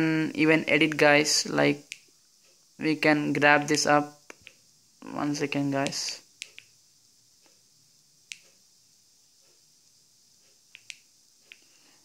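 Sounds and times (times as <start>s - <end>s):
remote control buttons clicking: 1.8s - 2.1s, 4.3s - 4.6s, 5.8s - 6.8s, 8.2s - 8.6s, 10.4s - 11.7s.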